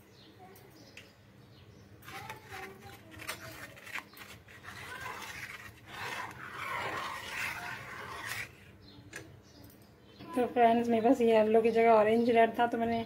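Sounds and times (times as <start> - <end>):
spoon stirring and scraping pan: 2.0 - 8.8.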